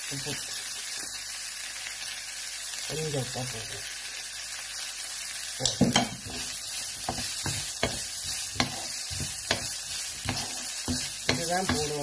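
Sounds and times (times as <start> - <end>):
vegetables sizzling in a wok: 0.0 - 12.0
wooden spoon scraping a pan: 5.8 - 12.0.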